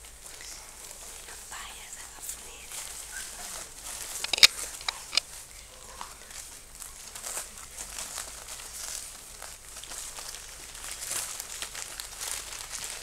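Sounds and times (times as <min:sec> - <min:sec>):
bedding crinkling and rustling: 0:00.0 - 0:13.0
sharp crackling clicks: 0:04.0 - 0:05.4.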